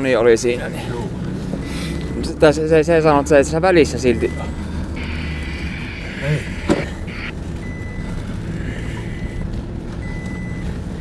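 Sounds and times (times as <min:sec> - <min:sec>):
engine and tyre rumble: 0:00.0 - 0:11.0
thin high whine: 0:05.0 - 0:07.3.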